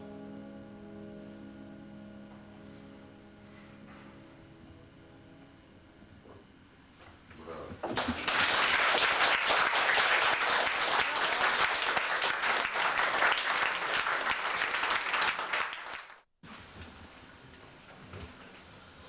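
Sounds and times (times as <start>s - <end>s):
audience clapping: 7.9s - 16.3s.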